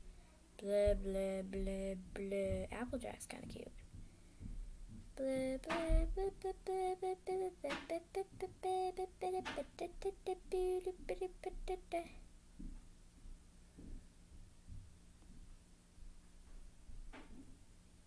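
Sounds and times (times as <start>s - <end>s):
girl singing wordless tune: 0.1s - 3.9s, 5.0s - 12.3s.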